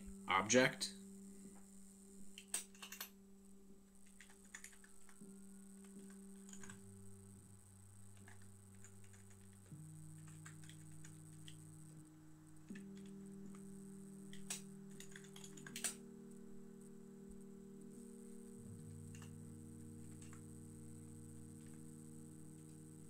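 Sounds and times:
computer keyboard keys clicking: 0:02.4 - 0:03.1, 0:04.0 - 0:05.2, 0:05.8 - 0:06.8, 0:08.2 - 0:11.6, 0:14.3 - 0:16.0, 0:20.1 - 0:20.4.

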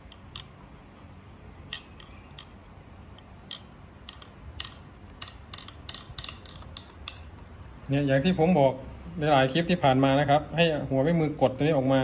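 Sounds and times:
light metallic clicks and taps: 0:01.7 - 0:07.5.

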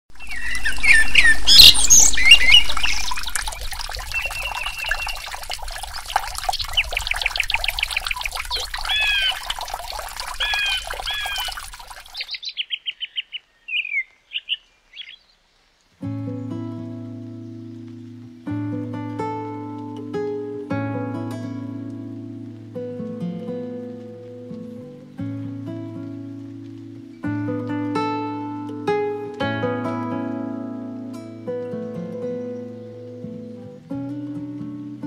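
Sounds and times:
songbirds chirping: 0:00.1 - 0:21.0, 0:30.8 - 0:35.0.

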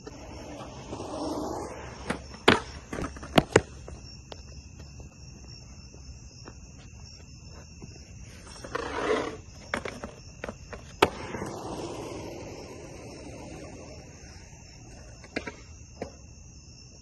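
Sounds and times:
skateboard scraping on coping: 0:00.0 - 0:04.0, 0:08.2 - 0:15.8
crickets chirping: 0:00.0 - 0:17.0
skateboard wheels rolling on concrete: 0:00.0 - 0:17.0
skateboard slapping down: 0:00.1 - 0:04.0, 0:08.8 - 0:14.0.

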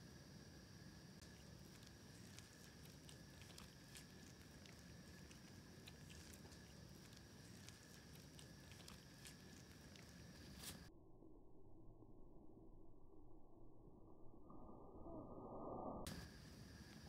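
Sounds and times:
kitten chewing food: 0:01.2 - 0:10.9.

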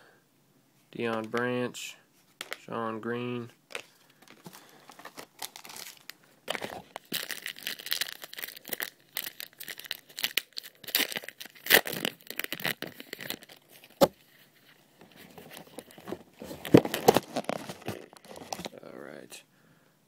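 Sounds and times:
wrapper ripping and crinkling: 0:03.7 - 0:18.8.

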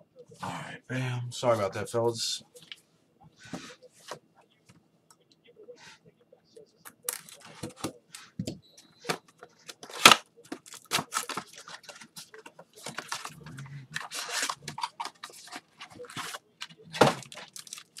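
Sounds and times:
card wrappers crinkling: 0:06.9 - 0:07.7, 0:09.6 - 0:18.0.

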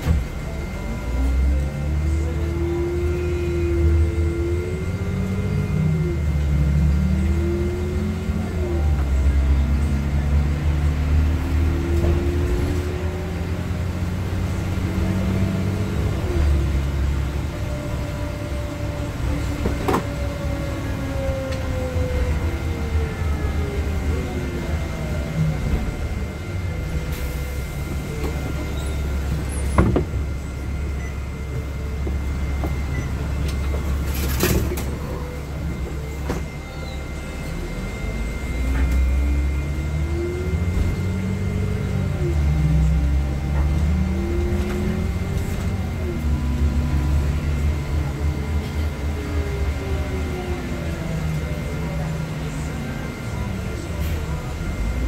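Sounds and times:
bus engine and drivetrain: 0:00.0 - 0:55.0
bus whine shifting gears: 0:00.0 - 0:55.0.

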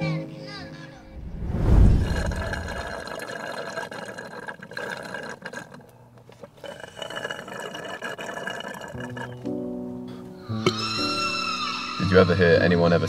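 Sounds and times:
sipping through a straw: 0:01.7 - 0:09.5.

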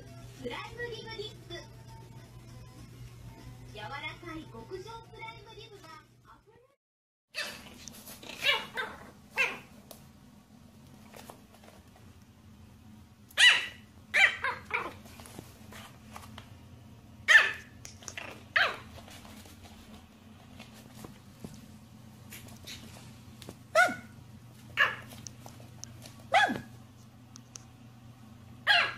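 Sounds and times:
puppy yapping: 0:07.4 - 0:09.7, 0:13.4 - 0:15.0, 0:17.3 - 0:18.9, 0:23.7 - 0:24.2, 0:24.8 - 0:25.2, 0:26.3 - 0:26.8, 0:28.7 - 0:28.9.

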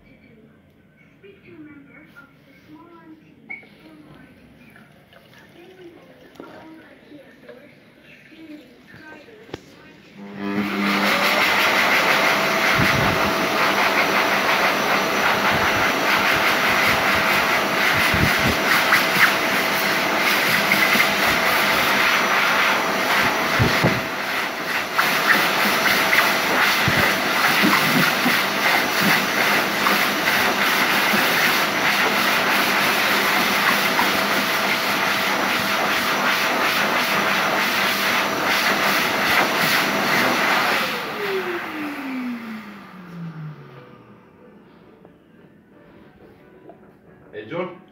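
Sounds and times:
hand dryer running: 0:09.0 - 0:46.3.

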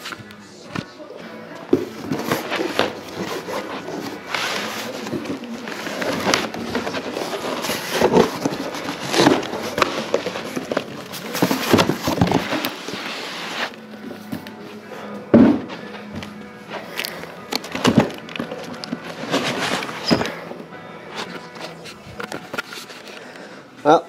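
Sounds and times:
cardboard rustling and scraping: 0:01.7 - 0:14.6, 0:17.5 - 0:20.5.

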